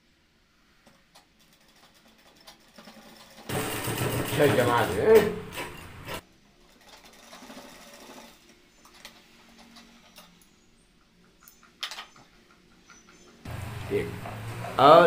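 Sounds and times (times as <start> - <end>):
sewing machine stitching: 1.6 - 6.2.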